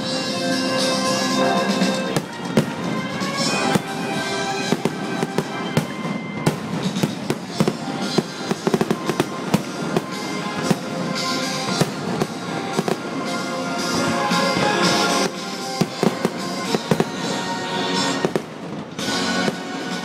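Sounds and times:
music with held notes: 0.0 - 20.0
fireworks bangs and crackles: 0.8 - 20.0.

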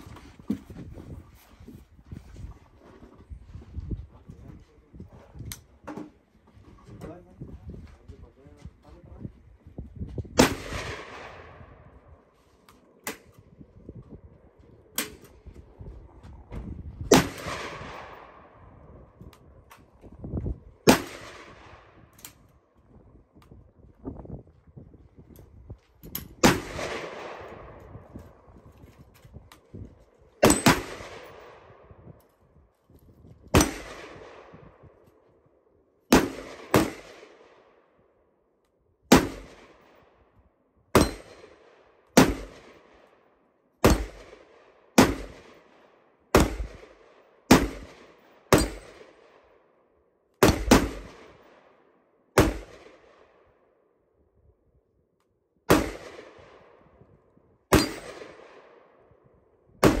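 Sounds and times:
rifle shots echoing: 10.4 - 12.0, 17.1 - 18.8, 20.8 - 22.1, 26.4 - 27.9, 30.4 - 31.8, 33.5 - 34.6, 36.1 - 37.9, 39.1 - 40.1, 40.9 - 43.2, 43.8 - 49.6, 50.4 - 51.8, 52.4 - 53.4, 55.7 - 56.8, 57.7 - 59.0, 59.8 - 60.0.

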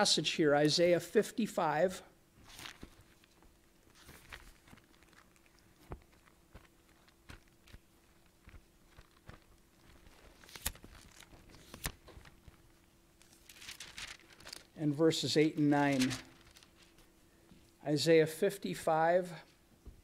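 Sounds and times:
thin pages being turned: 2.4 - 14.8, 15.8 - 17.1
page snaps: 10.4 - 12.4.

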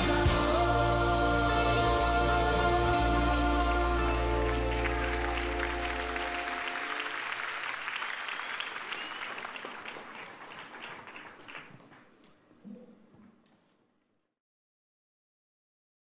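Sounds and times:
sustained song notes: 0.0 - 7.2
applause: 4.4 - 12.2.

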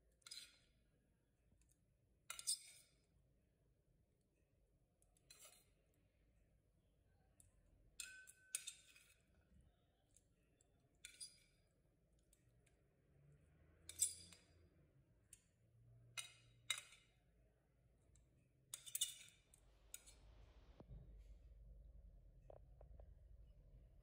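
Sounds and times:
ceramic bowl clinking on plate: 8.0 - 9.2.

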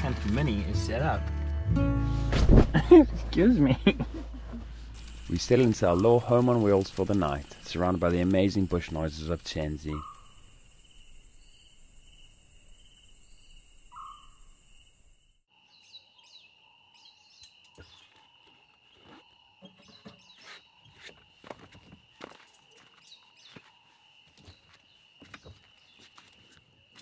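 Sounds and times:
owl calling: 5.0 - 6.8, 9.7 - 10.8, 13.3 - 14.6
crickets chirring: 5.0 - 27.0
night insect chorus: 5.0 - 27.0.

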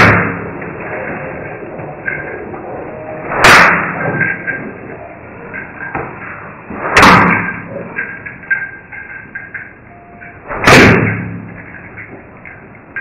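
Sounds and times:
heavy bangs with low ringing: 0.0 - 1.2, 3.2 - 4.9, 5.8 - 8.1, 9.4 - 12.1.

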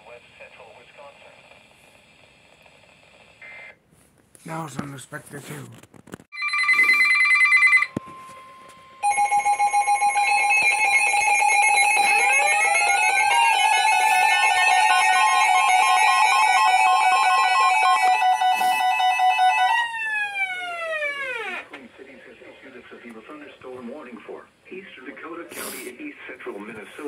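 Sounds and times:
layered electronic alert tones: 8.0 - 19.8.

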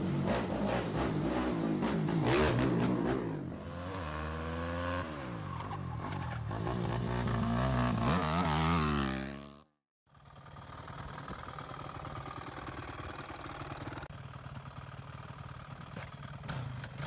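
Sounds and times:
atv engines revving: 0.0 - 9.6.

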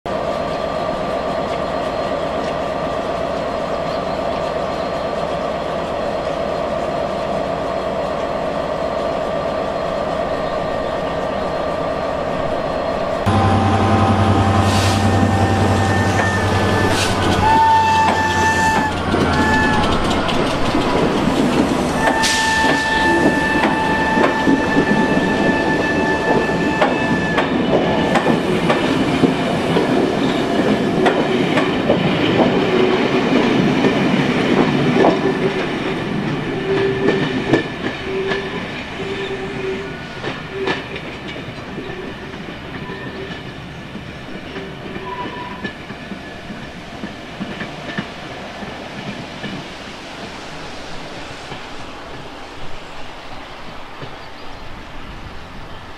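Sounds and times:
steady high whine: 13.3 - 17.3
train wheels clicking over rail joints: 13.3 - 50.5.

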